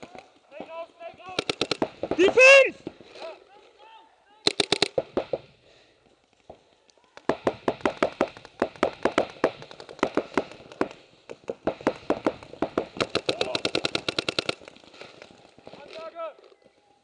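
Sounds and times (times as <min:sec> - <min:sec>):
paintball markers firing: 0:01.3 - 0:02.5, 0:04.5 - 0:05.5, 0:07.2 - 0:14.7.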